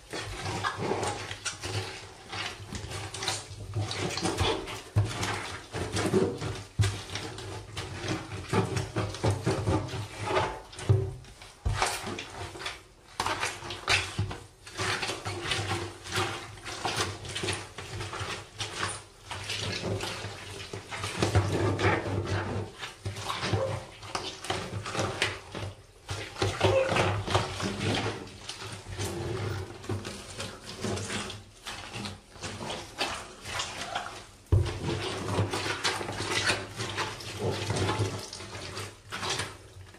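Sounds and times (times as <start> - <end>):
boots squashing wet food: 14.8 - 39.8.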